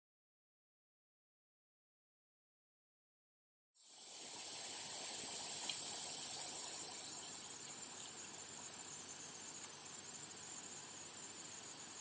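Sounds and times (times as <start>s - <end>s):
high-pitched hiss: 3.8s - 12.0s.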